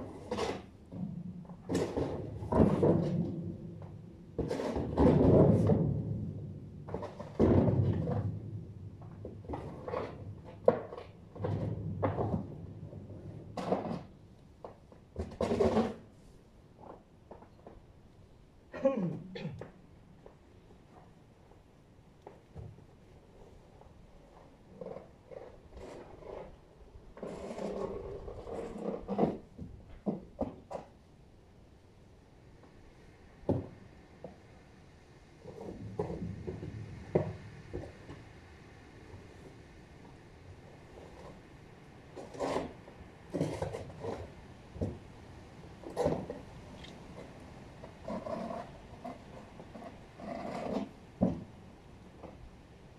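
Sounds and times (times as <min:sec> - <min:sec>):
snow shovel knocking and scraping: 0:04.4 - 0:06.2, 0:43.3 - 0:45.0.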